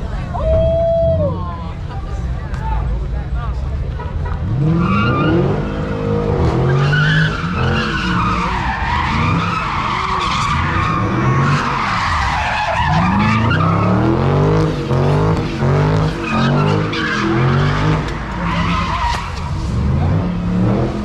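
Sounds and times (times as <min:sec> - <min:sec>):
car engine revving: 0:04.3 - 0:21.0.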